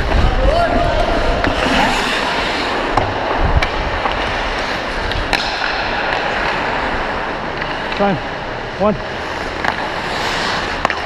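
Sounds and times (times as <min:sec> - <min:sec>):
skates scraping on ice: 0:00.0 - 0:11.0
hockey stick clicking on puck: 0:01.4 - 0:06.7, 0:09.4 - 0:11.0.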